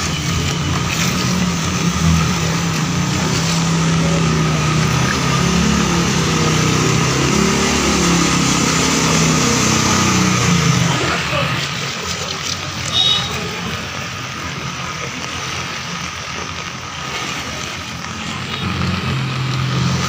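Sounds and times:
motorcycle engine running: 0:00.0 - 0:13.7
rain and water hissing: 0:00.0 - 0:20.0.

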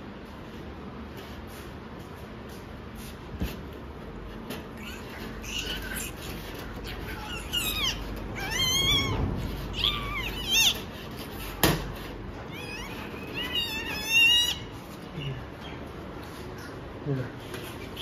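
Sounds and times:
puppy squealing: 0:04.5 - 0:16.0.

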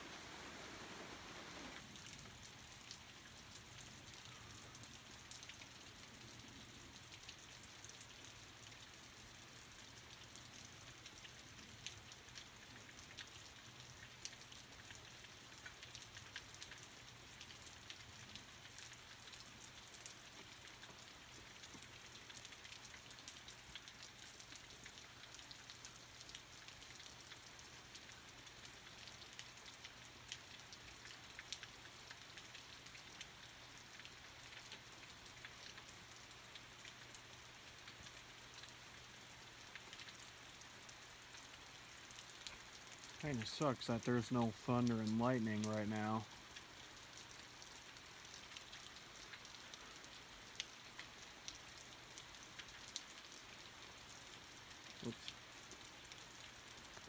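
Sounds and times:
faint steady rain: 0:00.0 - 0:57.0
raindrops ticking: 0:01.7 - 0:57.0.

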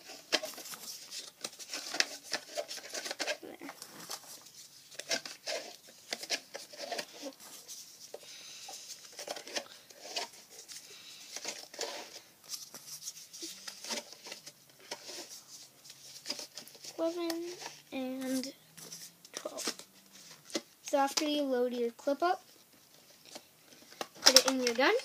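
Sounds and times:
plastic clicks and scrapes: 0:00.0 - 0:07.4, 0:08.1 - 0:12.8, 0:13.4 - 0:15.4, 0:23.0 - 0:25.0.

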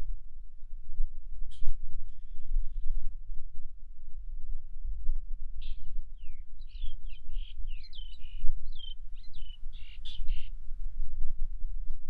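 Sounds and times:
steady low rumble: 0:00.0 - 0:12.0
bird giving harsh crow-like calls: 0:07.4 - 0:10.5.

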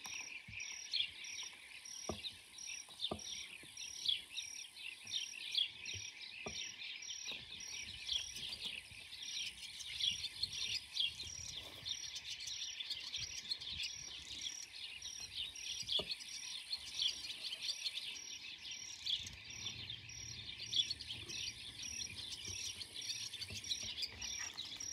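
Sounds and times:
birds calling in dense chorus: 0:00.0 - 0:24.9.

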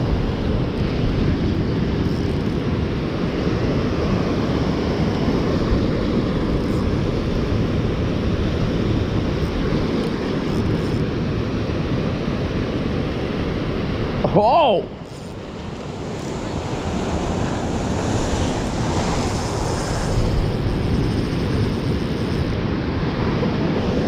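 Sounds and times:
ocean surf: 0:00.0 - 0:24.0
wind buffeting microphone: 0:00.0 - 0:24.0.

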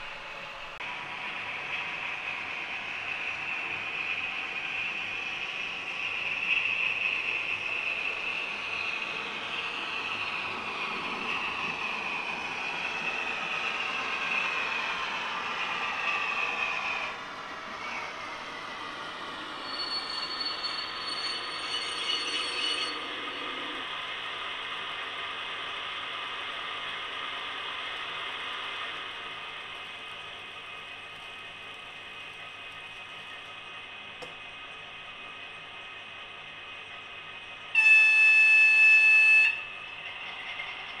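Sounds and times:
model train whir and clatter: 0:00.0 - 0:41.0
thin high tone: 0:19.6 - 0:23.8.

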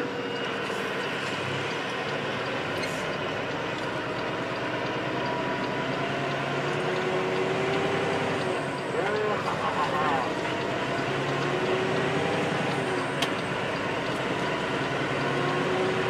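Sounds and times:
road noise: 0:00.0 - 0:16.0
truck diesel engine: 0:00.0 - 0:16.0.

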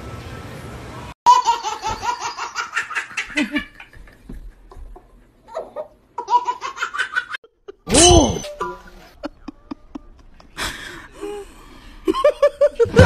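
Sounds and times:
baby laughing: 0:05.4 - 0:07.9.

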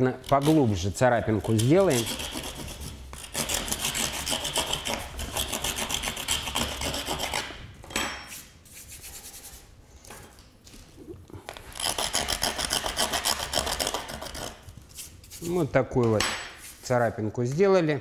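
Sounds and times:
metal tool scraping sheet: 0:00.0 - 0:09.7, 0:11.7 - 0:15.7.

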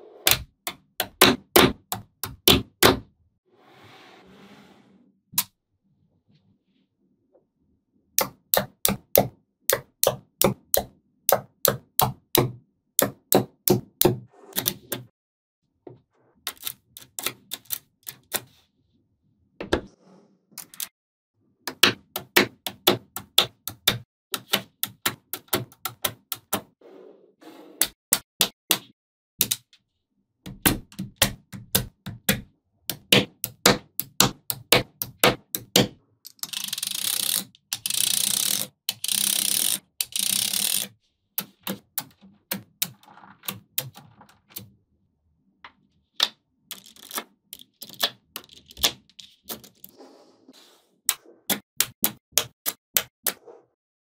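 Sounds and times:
magnetic balls clicking together: 0:32.9 - 0:43.0, 0:46.7 - 0:48.9.

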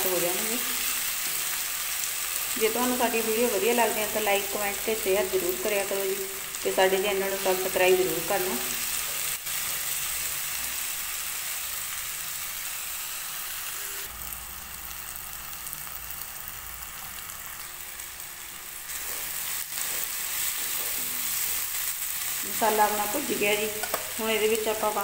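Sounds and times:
onions sizzling in oil: 0:00.0 - 0:25.0
wooden spatula stirring: 0:19.0 - 0:21.9.

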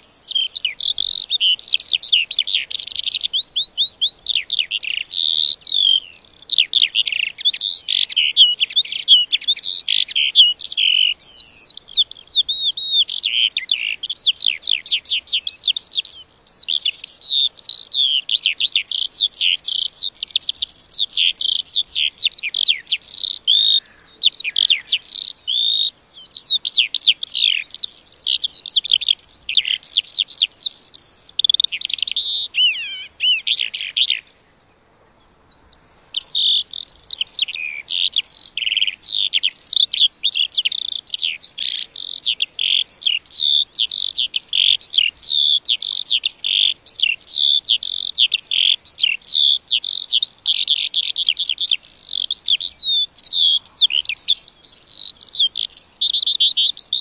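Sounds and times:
lark singing warbling trills: 0:00.0 - 0:57.0.

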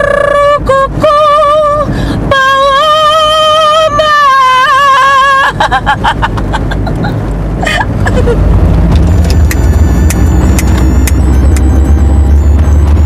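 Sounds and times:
car driving with window open: 0:00.0 - 0:13.0
person laughing: 0:05.4 - 0:08.5
sharp clicks: 0:09.0 - 0:11.7.

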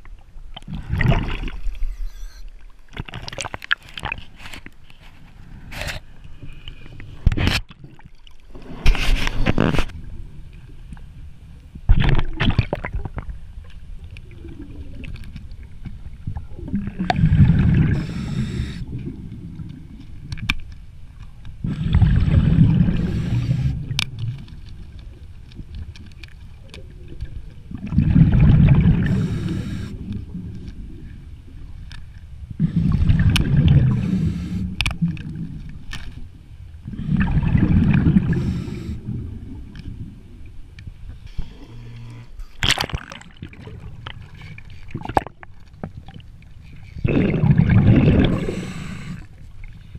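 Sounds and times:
underwater exhaled bubbles rushing: 0:00.6 - 0:01.8, 0:16.2 - 0:20.0, 0:21.6 - 0:24.2, 0:26.8 - 0:31.1, 0:32.6 - 0:35.6, 0:36.8 - 0:40.4, 0:47.0 - 0:49.8.

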